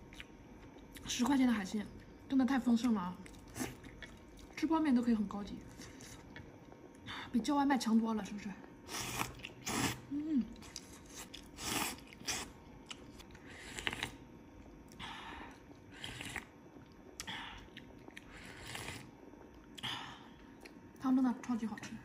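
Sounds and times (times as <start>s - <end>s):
person chewing noodles: 0.1s - 1.0s, 3.2s - 4.6s, 5.6s - 6.8s, 8.9s - 19.9s.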